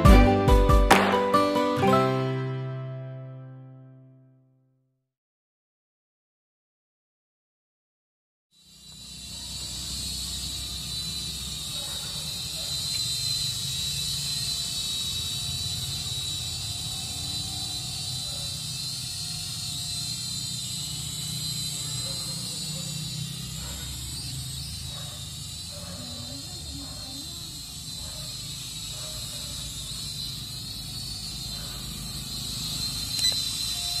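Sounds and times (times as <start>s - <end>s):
toy quadcopter propellers whining: 8.5s - 34.0s.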